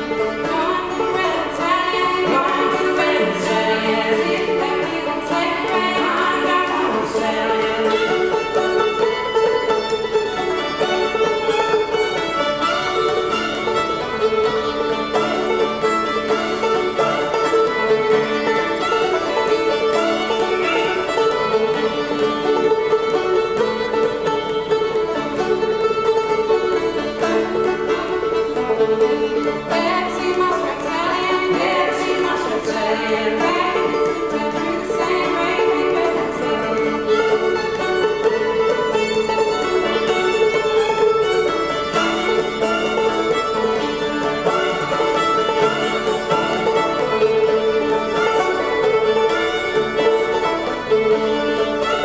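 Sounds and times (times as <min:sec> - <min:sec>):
banjo picking rhythm: 0:00.0 - 0:52.0
fiddle melody: 0:00.0 - 0:52.0.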